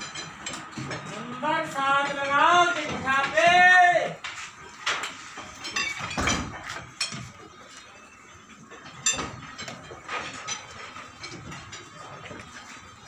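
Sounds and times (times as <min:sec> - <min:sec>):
metal and brick clinks and knocks: 0:00.0 - 0:01.4, 0:04.2 - 0:13.0.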